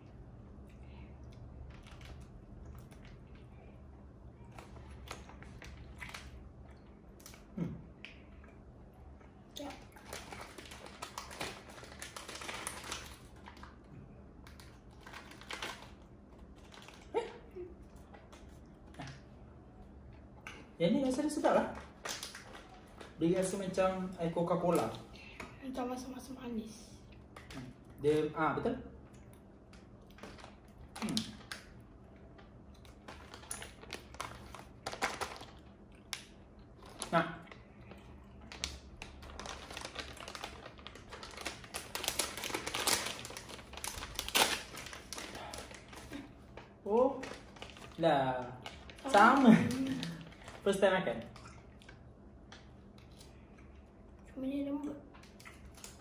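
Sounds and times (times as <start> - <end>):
dry clicks and crackles of candy: 9.6 - 17.1, 29.3 - 37.6, 38.3 - 50.8.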